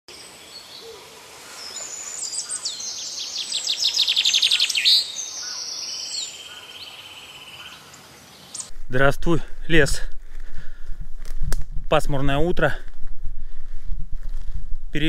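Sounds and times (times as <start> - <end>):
small songbirds singing: 0.1 - 8.7.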